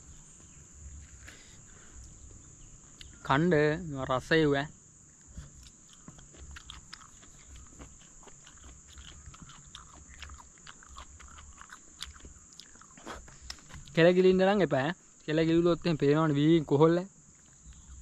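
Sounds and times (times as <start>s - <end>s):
high insect buzz: 0.0s - 18.0s
wet chewing: 5.2s - 14.0s, 17.3s - 18.0s.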